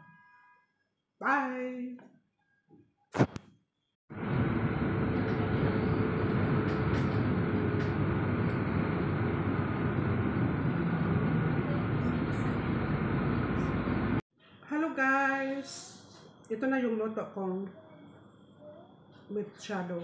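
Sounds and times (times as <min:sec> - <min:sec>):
road vehicle interior noise: 0:04.2 - 0:14.2.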